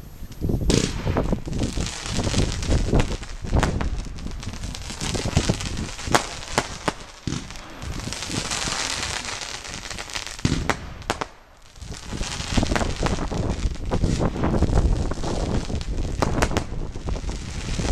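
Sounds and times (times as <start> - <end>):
hissing and crackling sparks: 0.0 - 17.9
firework bangs: 0.5 - 17.9.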